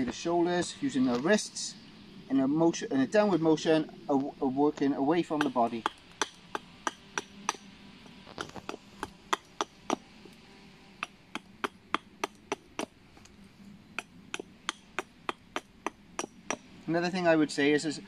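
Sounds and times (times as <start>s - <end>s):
small axe chopping wood: 5.4s - 7.7s, 8.4s - 10.0s, 11.0s - 13.0s, 14.0s - 16.6s.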